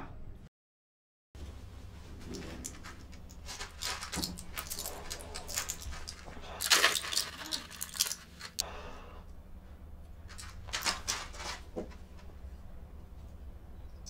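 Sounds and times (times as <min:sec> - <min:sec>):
blister pack crinkling: 0:02.7 - 0:08.6.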